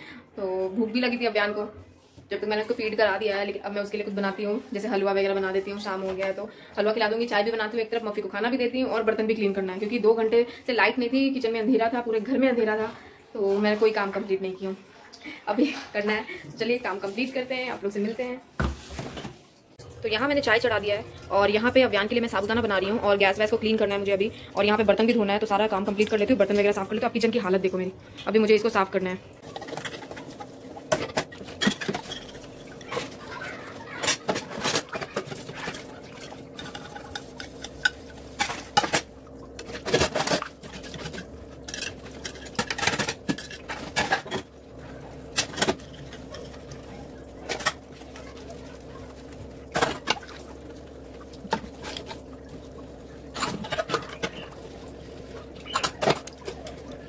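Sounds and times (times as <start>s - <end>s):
dishes clinking and clattering: 29.4s - 57.0s.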